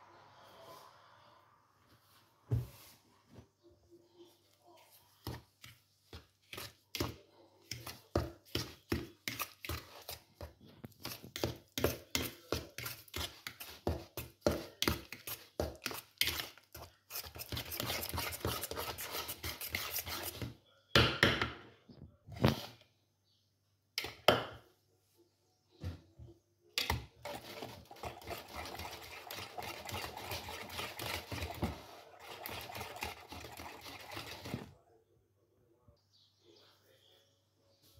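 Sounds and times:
whisk scraping swish: 10.9 - 20.4, 27.2 - 34.7
whisk clacking against bowl: 11.0 - 20.4, 26.8 - 34.7.

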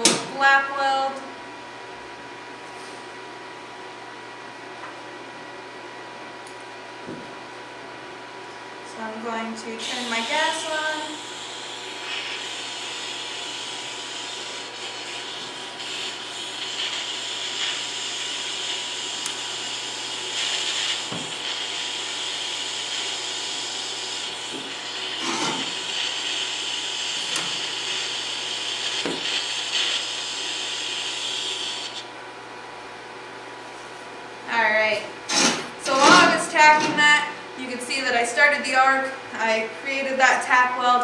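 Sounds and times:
welding arc hissing: 9.8 - 32.1.

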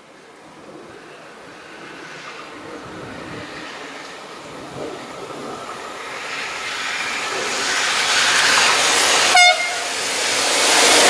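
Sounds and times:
train running on rails: 0.0 - 11.0
train horn toot: 9.3 - 9.9.

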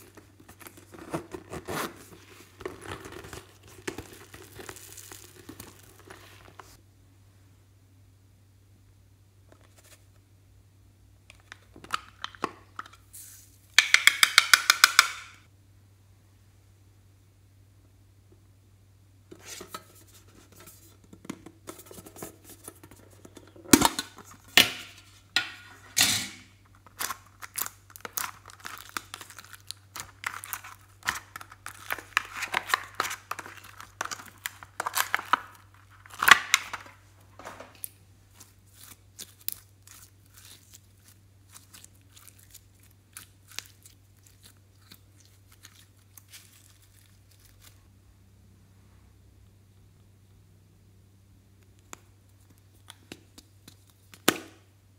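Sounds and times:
slime crackling and popping: 26.9 - 36.7, 37.8 - 47.8.

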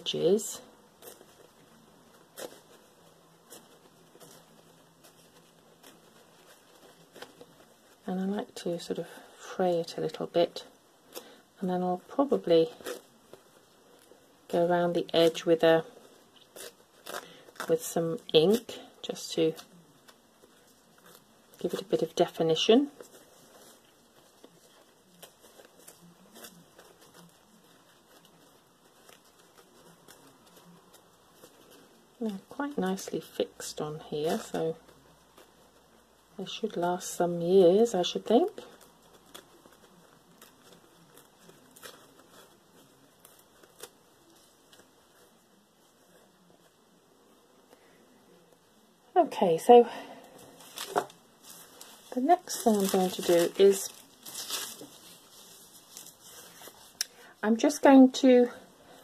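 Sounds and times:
tissue paper rustling: 0.0 - 48.9, 49.6 - 59.0
paper crackle: 0.0 - 49.0, 50.1 - 59.0.

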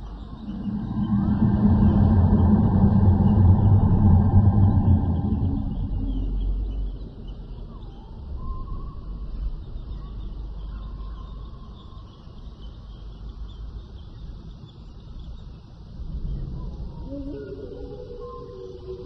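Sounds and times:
long gliding animal call: 0.0 - 9.2, 16.9 - 19.0
low rumble: 0.0 - 10.6.

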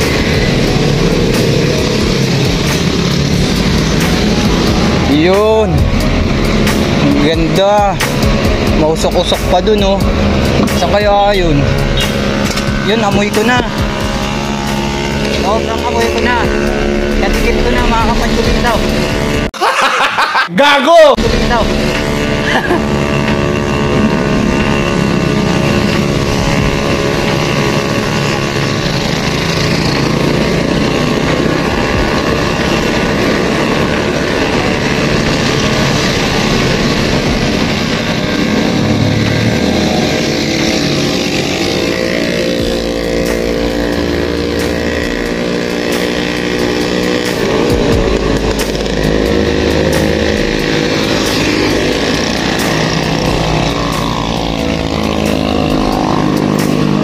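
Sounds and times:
motor vehicle engines running: 0.0 - 19.6, 20.8 - 57.0
wind rumbling on microphone: 21.2 - 57.0.

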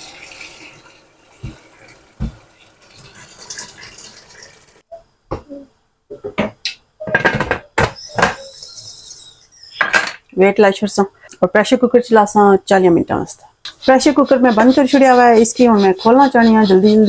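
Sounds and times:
water pouring into a pot: 0.0 - 4.8.

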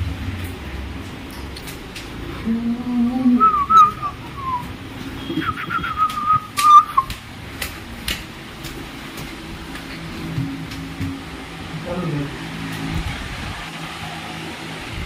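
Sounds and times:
footsteps on tiled stairs: 0.0 - 15.0
person whistling a tune: 3.4 - 7.1.

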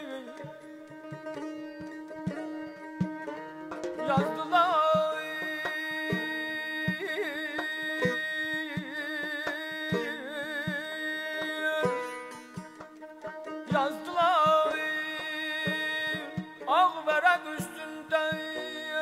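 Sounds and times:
man singing melismatic runs: 4.0 - 12.9, 13.6 - 19.0.

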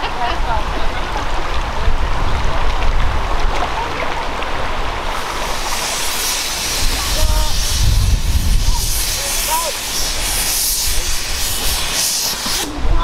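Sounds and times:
steady rushing noise: 4.6 - 13.0
steam locomotive hissing: 5.2 - 12.9.

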